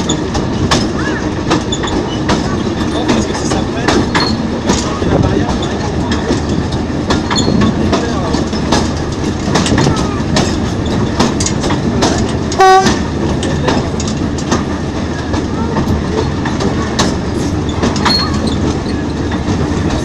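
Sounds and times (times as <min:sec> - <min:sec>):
diesel locomotive running: 0:00.0 - 0:20.0
wheels clicking over track: 0:00.0 - 0:20.0
locomotive horn blast: 0:12.6 - 0:13.0.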